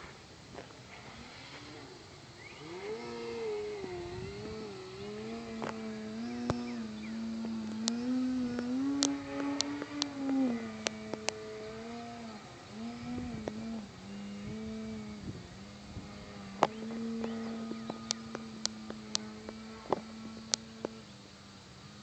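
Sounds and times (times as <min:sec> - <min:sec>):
model plane motor droning: 0:00.0 - 0:22.0
sharp ticks: 0:04.4 - 0:11.5, 0:16.5 - 0:21.1.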